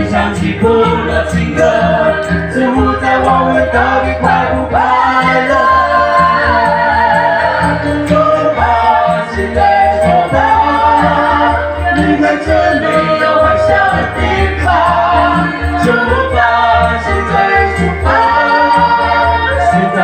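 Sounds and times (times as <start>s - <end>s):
bass and beat backing: 0.0s - 20.0s
group singing through microphones: 0.0s - 20.0s.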